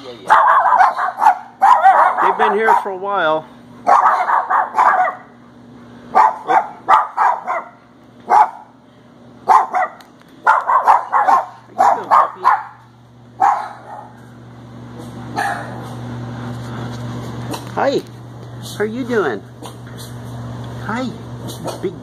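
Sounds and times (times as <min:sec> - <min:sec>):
steady low hum: 0:00.0 - 0:22.0
dogs barking: 0:00.2 - 0:03.1, 0:03.8 - 0:05.4, 0:06.1 - 0:08.8, 0:09.4 - 0:14.3, 0:15.0 - 0:16.1.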